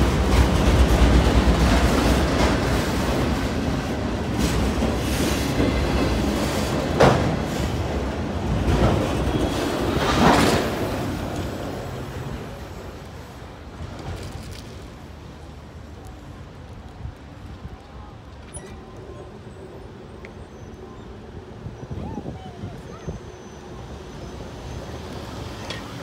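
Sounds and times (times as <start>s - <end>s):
train wheels rumbling and clacking: 0.0s - 17.3s.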